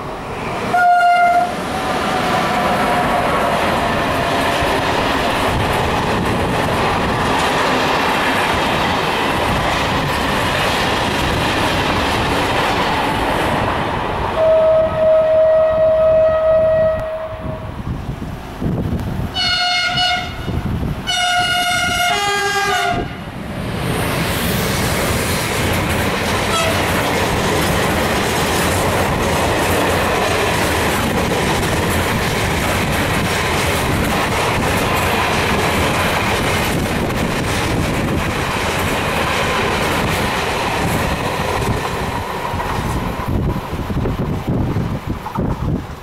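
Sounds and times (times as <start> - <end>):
freight wagons rumbling on rails: 0.0 - 46.0
locomotive horn blasts: 0.7 - 1.6, 14.4 - 17.7, 19.4 - 23.2, 26.5 - 26.9.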